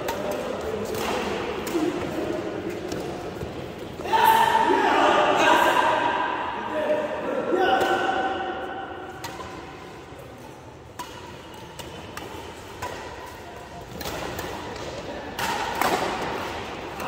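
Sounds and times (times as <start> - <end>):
rackets hitting shuttlecock: 0.0 - 4.0, 7.7 - 17.0
voices and shouting: 4.0 - 8.9.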